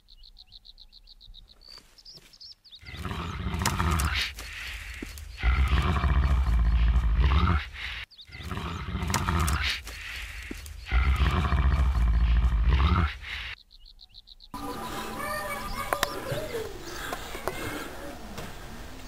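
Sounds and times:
deep animal roar: 0:02.8 - 0:13.5.

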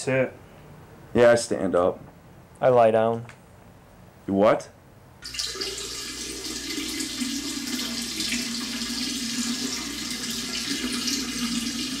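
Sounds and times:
person urinating into toilet: 0:05.2 - 0:12.0.

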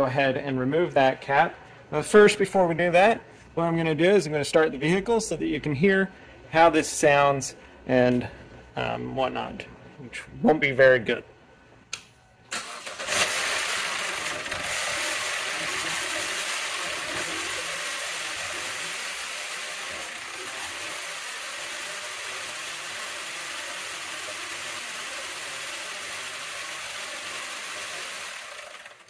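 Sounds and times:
car engine starting and running roughly: 0:12.5 - 0:29.0.

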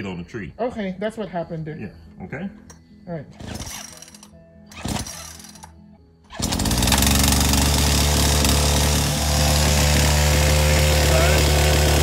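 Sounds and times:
chainsaw engine running: 0:03.4 - 0:05.7, 0:06.3 - 0:12.0.

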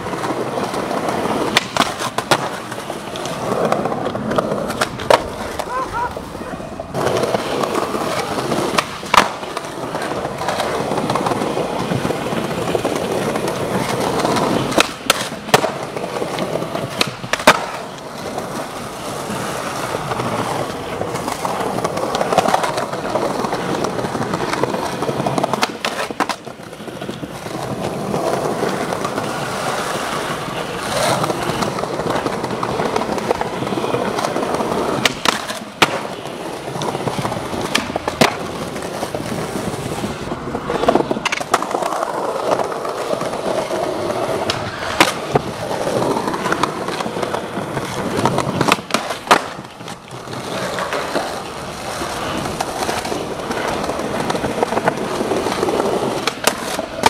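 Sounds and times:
skateboard clacks: 0:00.0 - 0:57.0
skateboard wheels rolling on concrete: 0:00.0 - 0:57.0.

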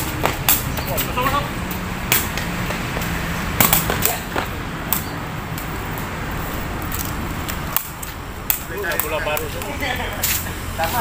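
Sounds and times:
outdoor background noise: 0:00.0 - 0:11.0
ball being kicked: 0:02.1 - 0:05.1.

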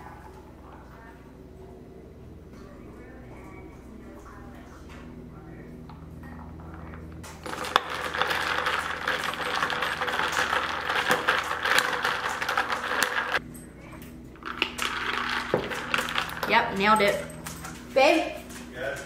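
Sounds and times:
ice cubes clinking in glass jar: 0:07.4 - 0:13.4, 0:14.4 - 0:17.3.

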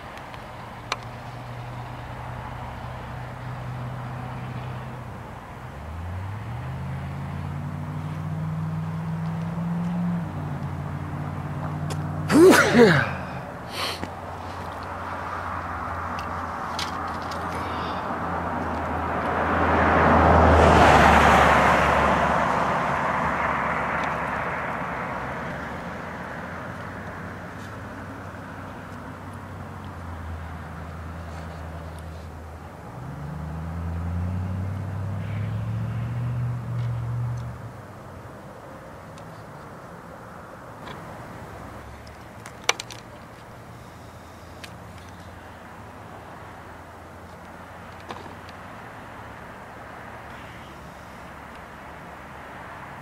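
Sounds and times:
low engine hum: 0:00.0 - 0:53.0
vehicle passing by: 0:01.2 - 0:37.9.

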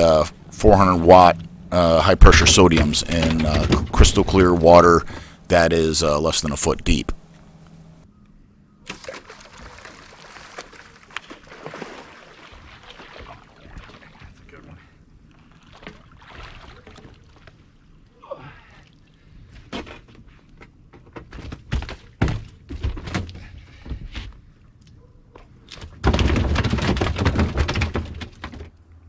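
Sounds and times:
knocks and thuds of handling gear: 0:02.4 - 0:04.2, 0:26.0 - 0:28.8.

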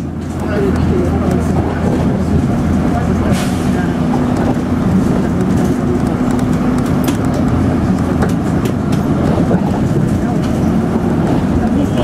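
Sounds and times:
bus engine and road noise: 0:00.0 - 0:12.0
light clicks from bus body: 0:03.0 - 0:10.7.

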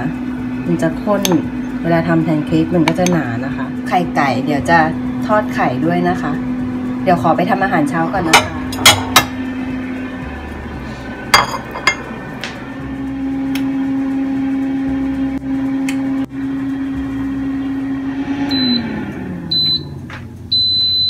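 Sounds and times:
air fryer fan hum: 0:00.0 - 0:21.0
dishes clinking: 0:11.4 - 0:12.1
timer beeps: 0:18.5 - 0:18.9, 0:19.5 - 0:19.9, 0:20.5 - 0:21.0.

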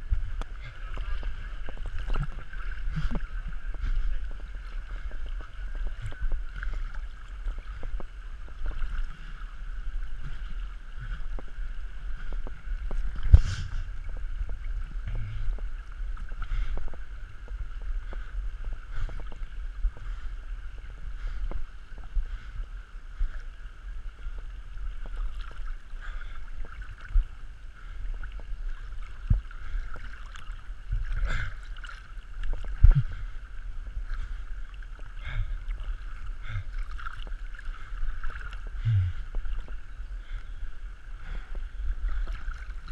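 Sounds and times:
low rumble: 0:00.0 - 0:23.3, 0:32.5 - 0:37.0, 0:37.8 - 0:42.9
stream water sloshing and gurgling: 0:00.0 - 0:42.9.

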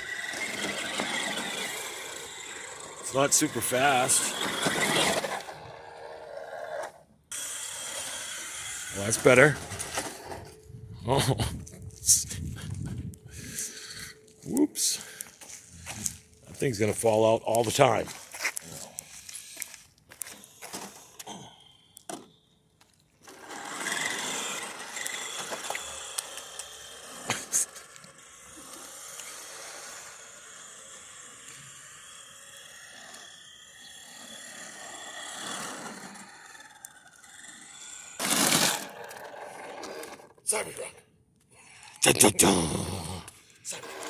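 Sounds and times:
toy truck being handled: 0:00.0 - 0:06.1, 0:06.7 - 0:10.6, 0:17.5 - 0:21.2, 0:21.9 - 0:40.5, 0:43.3 - 0:44.0
toy car motor whirring: 0:00.0 - 0:10.7, 0:12.0 - 0:16.4, 0:17.0 - 0:40.9, 0:43.0 - 0:44.0.

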